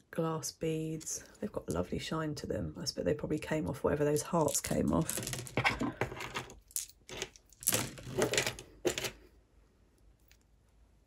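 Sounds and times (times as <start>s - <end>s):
metal jewellery clinking: 4.4s - 9.2s.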